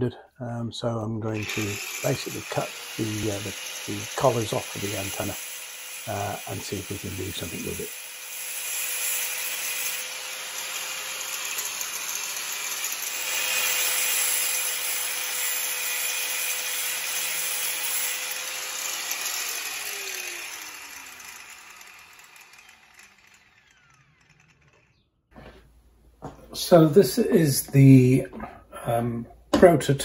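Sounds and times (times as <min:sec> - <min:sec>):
angle grinder cutting metal: 0:01.3 - 0:25.0.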